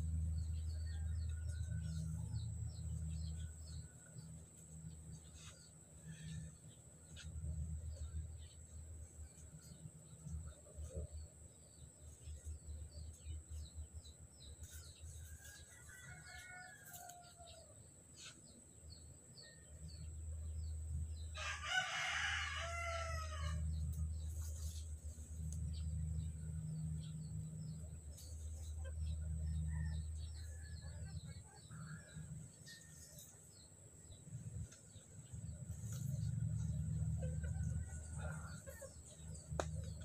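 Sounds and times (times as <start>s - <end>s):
low rumble: 0.0s - 4.3s, 35.2s - 40.0s
rooster crowing: 15.4s - 17.7s, 21.4s - 23.8s, 37.2s - 39.4s.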